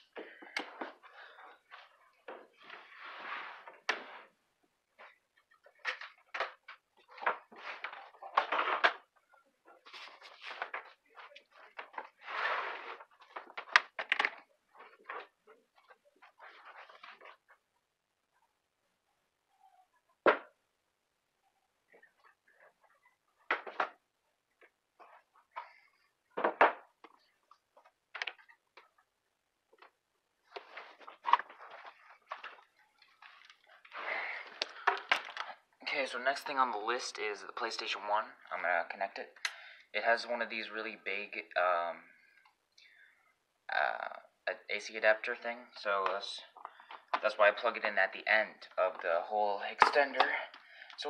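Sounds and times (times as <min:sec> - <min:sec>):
rustling and shuffling: 0:00.0 - 0:18.3, 0:21.8 - 0:37.0
plugs and cords clicking: 0:00.4 - 0:01.0, 0:13.4 - 0:16.0, 0:27.0 - 0:29.0, 0:29.7 - 0:35.6
handling of power cords and plugs: 0:05.0 - 0:17.6, 0:29.7 - 0:35.6.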